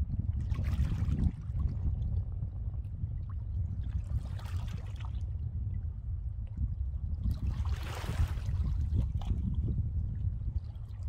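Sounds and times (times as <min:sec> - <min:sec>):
steady low rumble: 0:00.0 - 0:11.0
small waves lapping: 0:03.8 - 0:05.3, 0:07.4 - 0:09.4.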